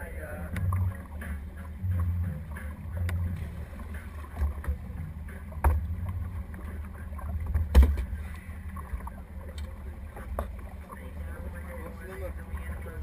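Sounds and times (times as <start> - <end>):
thuds on boat deck: 4.4 - 5.9, 7.5 - 8.2.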